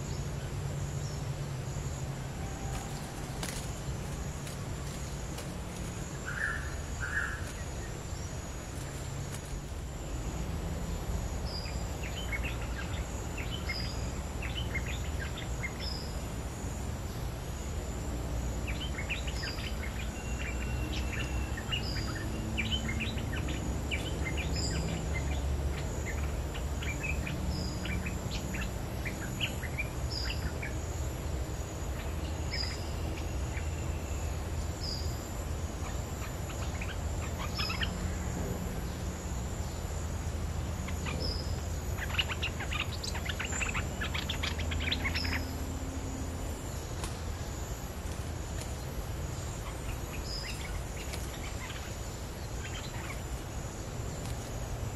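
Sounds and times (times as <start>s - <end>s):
bird chips: 2.5s - 8.0s.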